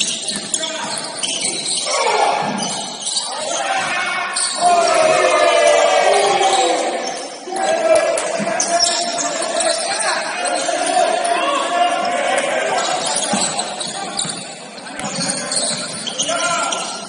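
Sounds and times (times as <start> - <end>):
basketball bouncing on court: 0.0 - 1.7, 13.2 - 17.0
voices shouting: 0.6 - 17.0.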